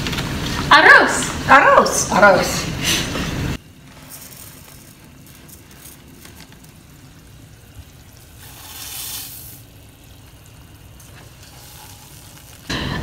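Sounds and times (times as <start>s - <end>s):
rice hissing in boiling water: 2.6s - 13.0s
rice rustling in plastic bag: 3.6s - 12.7s.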